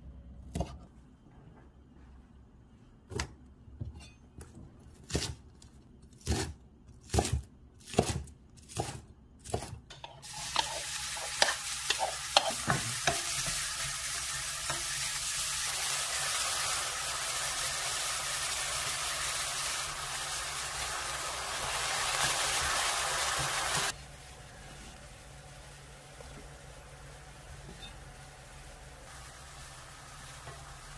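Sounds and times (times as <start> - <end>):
vegetables sizzling in frying pan: 10.1 - 30.9.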